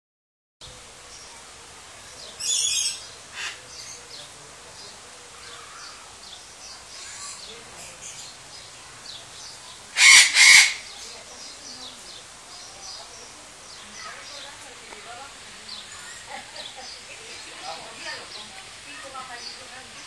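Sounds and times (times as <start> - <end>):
small birds chirping: 0.6 - 20.0
hornbill harsh calls: 2.4 - 4.2, 9.9 - 11.2.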